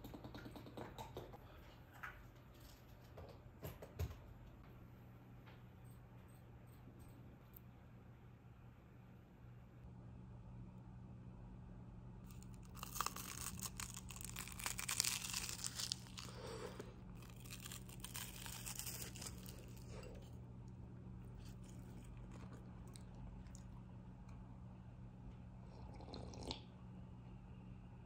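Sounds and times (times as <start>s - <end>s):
low steady hum: 0.0s - 28.0s
pastry crackling and crunching: 12.3s - 24.0s.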